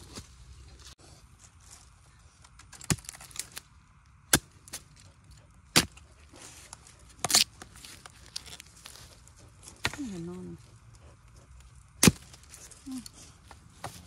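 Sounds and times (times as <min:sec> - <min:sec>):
spade chopping into soil: 0:05.7 - 0:06.0, 0:07.2 - 0:08.6, 0:12.0 - 0:12.7.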